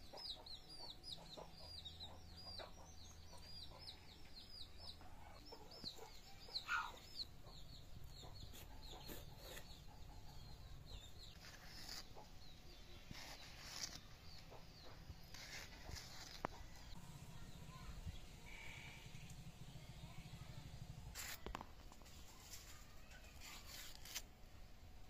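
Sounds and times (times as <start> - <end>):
quiet village background: 0.0 - 25.0
knife slicing vegetables: 23.2 - 24.3.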